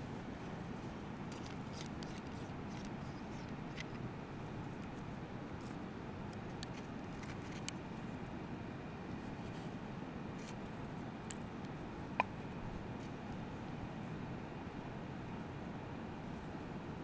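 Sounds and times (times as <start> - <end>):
faint clicks and rustles: 0.4 - 8.4.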